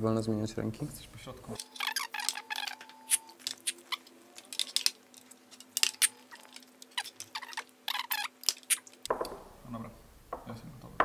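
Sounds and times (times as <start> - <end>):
cups clicking on a table: 9.1 - 9.5.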